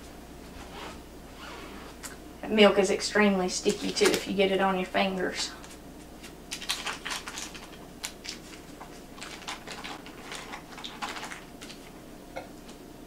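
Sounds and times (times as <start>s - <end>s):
paper wrapper crinkling: 6.5s - 11.9s.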